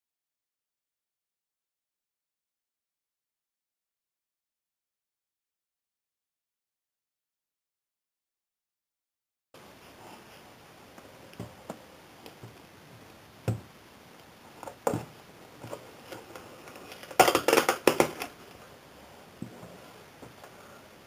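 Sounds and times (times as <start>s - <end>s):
packaging rustling and crinkling: 15.6s - 18.6s.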